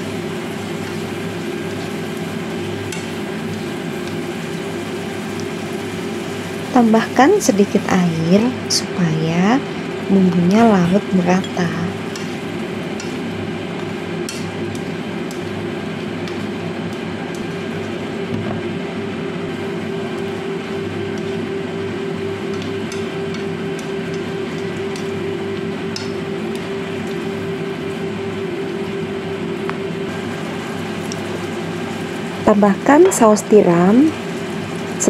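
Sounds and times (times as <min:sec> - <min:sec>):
kitchen fan humming: 0:00.0 - 0:35.0
chopsticks clicking on frying pan: 0:11.4 - 0:13.2, 0:13.8 - 0:15.5, 0:16.2 - 0:17.6, 0:22.5 - 0:25.1, 0:25.9 - 0:27.2.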